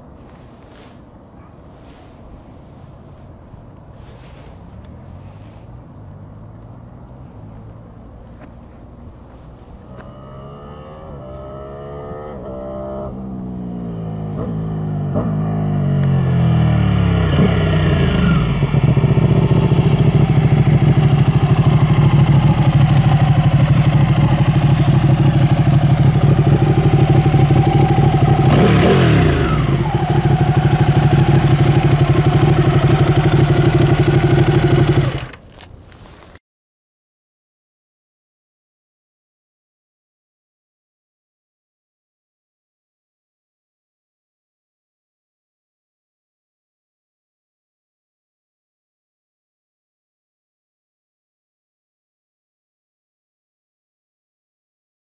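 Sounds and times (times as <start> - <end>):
motorcycle engine slowing and idling: 4.6 - 35.7
motorcycle engine revving: 9.7 - 35.4.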